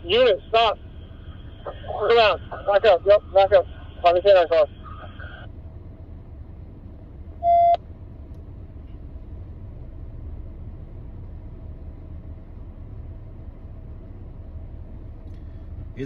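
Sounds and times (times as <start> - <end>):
short loud beep: 7.4 - 7.8.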